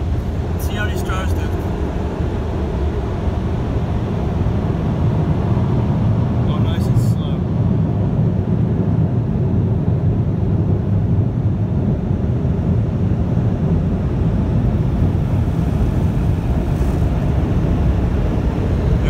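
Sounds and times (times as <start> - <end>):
air dryer blowers rushing: 14.8 - 19.0.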